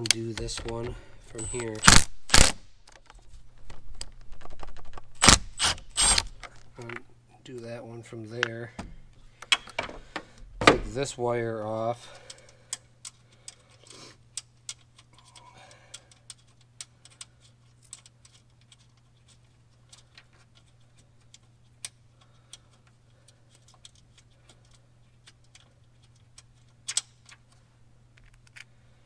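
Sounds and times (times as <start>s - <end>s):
steady low hum: 0.0s - 29.0s
small metallic clicks: 12.1s - 27.6s.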